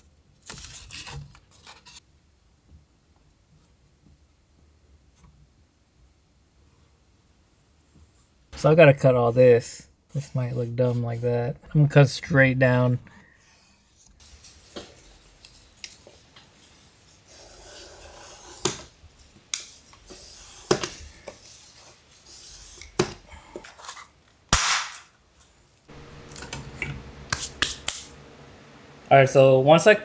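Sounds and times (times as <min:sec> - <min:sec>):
sharp crack of panel snapping: 0:24.5 - 0:25.2
steady low hum: 0:25.9 - 0:30.0.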